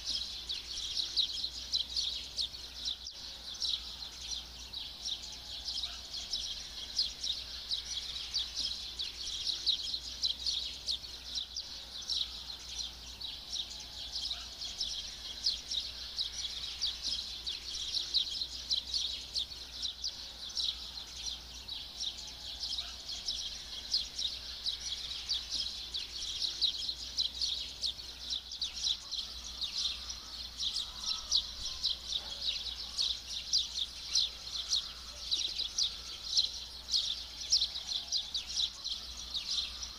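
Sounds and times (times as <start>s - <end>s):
birds chirping: 0.0s - 39.9s.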